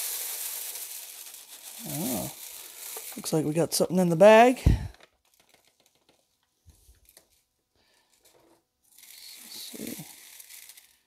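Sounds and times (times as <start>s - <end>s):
hand digging through gravel in strainer: 0.0s - 3.6s, 8.9s - 11.0s.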